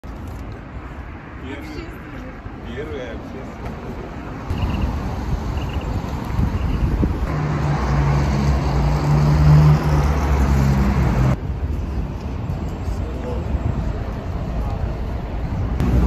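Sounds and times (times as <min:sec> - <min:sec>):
cars passing: 0:00.1 - 0:16.0
vehicle engine hum: 0:04.5 - 0:16.0.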